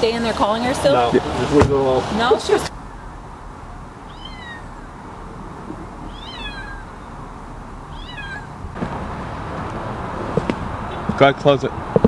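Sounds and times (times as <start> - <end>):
kitten mewing: 4.0 - 4.9, 6.0 - 7.0, 7.9 - 8.7.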